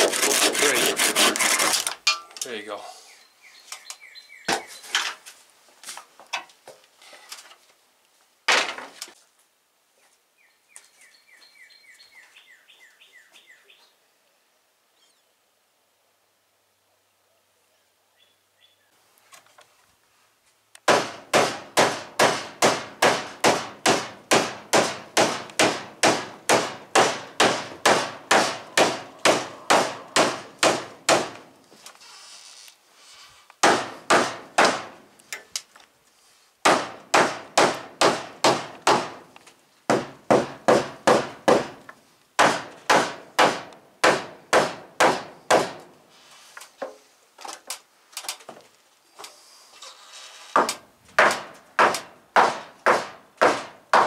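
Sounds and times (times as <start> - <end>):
hammer pounding on timber: 20.9 - 31.4, 33.6 - 35.0, 36.6 - 39.2, 39.9 - 41.8, 42.4 - 45.9, 50.6 - 54.0.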